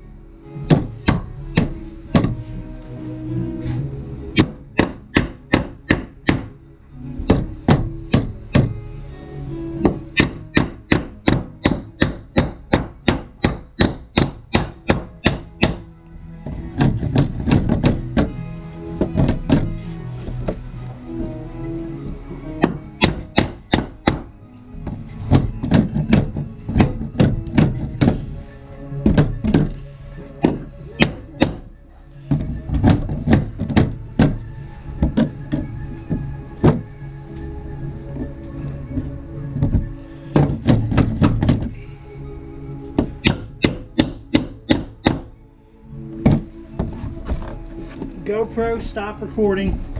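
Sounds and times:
hammer striking nail into wood: 0.7s - 2.4s, 4.4s - 6.5s, 7.3s - 8.7s, 9.8s - 15.9s, 16.8s - 18.3s, 22.6s - 28.2s, 29.0s - 29.8s, 30.4s - 31.7s, 32.3s - 34.4s, 43.0s - 45.3s.

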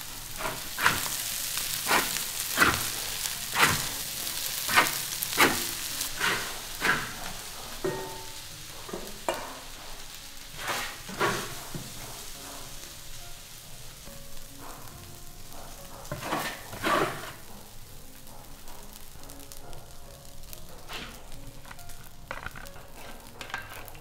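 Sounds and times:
metal spatula scraping wok: 0.0s - 14.0s, 14.7s - 17.8s, 20.2s - 24.0s
rice sizzling in a wok: 0.0s - 24.0s.

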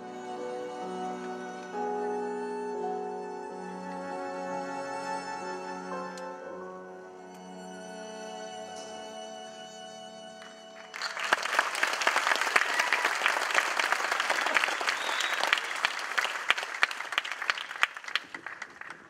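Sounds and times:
audience applauding: 10.4s - 19.0s.

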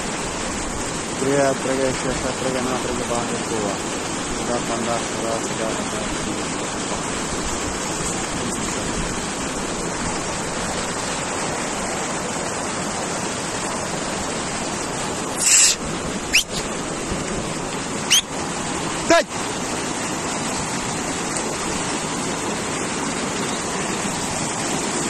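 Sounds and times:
stream rushing over rocks: 0.0s - 25.0s
high sliding whistle: 15.4s - 16.6s, 18.1s - 18.3s
short loud hiss: 15.4s - 16.6s.

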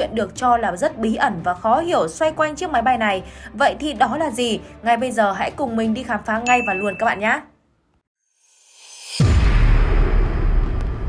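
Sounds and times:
whoosh: 8.5s - 11.0s
deep boom: 9.2s - 11.0s.

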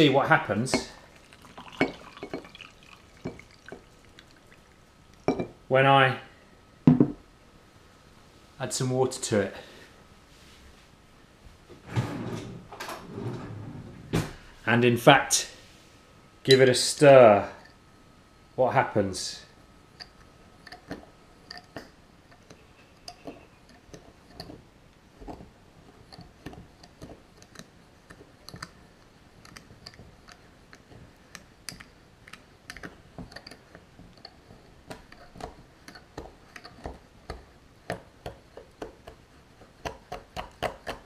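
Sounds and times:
spoon clinking against glass: 0.7s - 3.8s.

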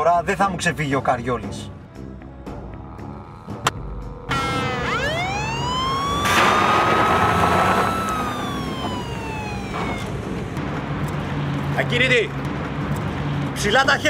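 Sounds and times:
car noise rushing: 3.5s - 13.7s
police siren wailing: 4.0s - 10.6s.

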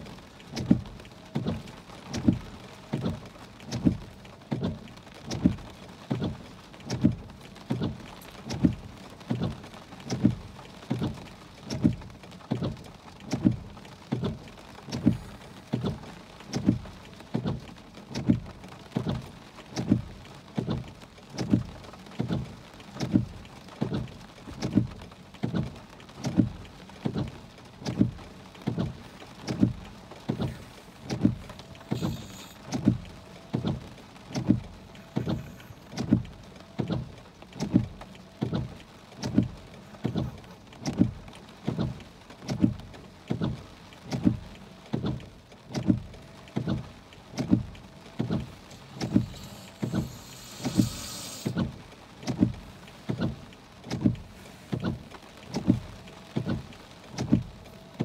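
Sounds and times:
rain hitting a car: 0.0s - 58.0s
windshield wipers thumping: 0.0s - 58.0s.

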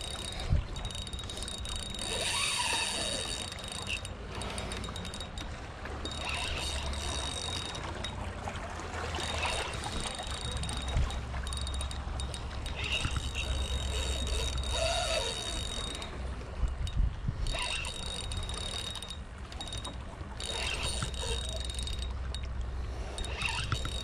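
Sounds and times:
wind rumbling on microphone: 12.0s - 18.8s.

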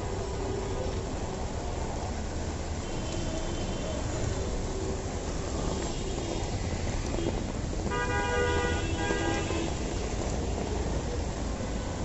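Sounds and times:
traffic on a wet street: 0.0s - 12.0s
vehicle horn honking: 7.9s - 9.8s.

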